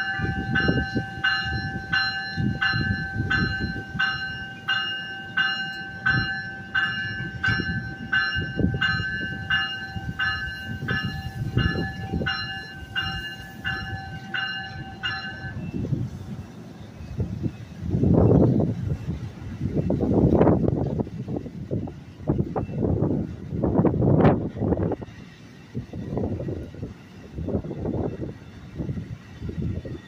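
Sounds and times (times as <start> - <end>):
steady high tone: 0.0 - 16.0
train warning bell ringing: 0.0 - 16.6
train coaches rumbling: 0.0 - 30.0.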